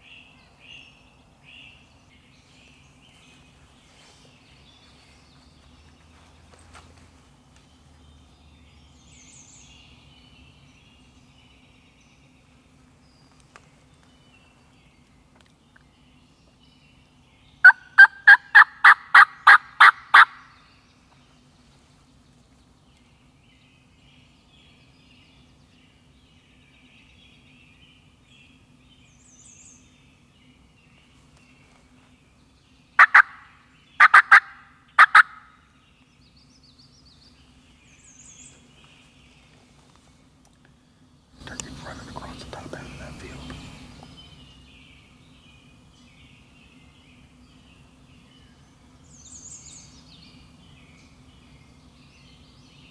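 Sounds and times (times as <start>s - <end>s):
wild turkey calls: 17.6s - 20.4s, 33.0s - 35.5s.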